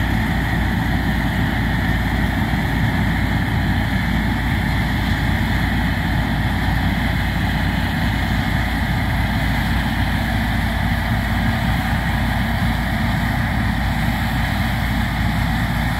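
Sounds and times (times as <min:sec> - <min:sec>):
combine harvester running: 0:00.0 - 0:15.9.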